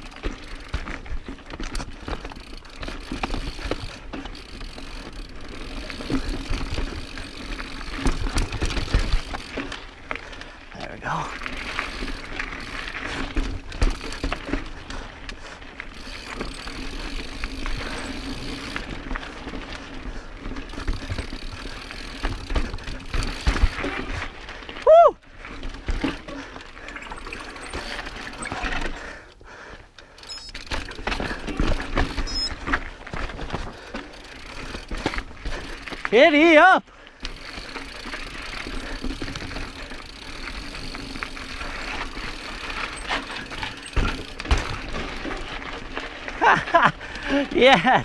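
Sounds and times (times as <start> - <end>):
bike clicks and rattles: 0.0 - 48.0
bike tyres on rocky trail: 0.0 - 48.0
person shouting: 24.9 - 25.2, 36.2 - 36.8.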